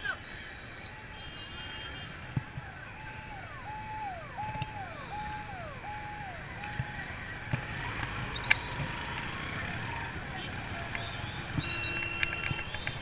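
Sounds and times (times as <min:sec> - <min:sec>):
street traffic noise: 0:00.0 - 0:13.0.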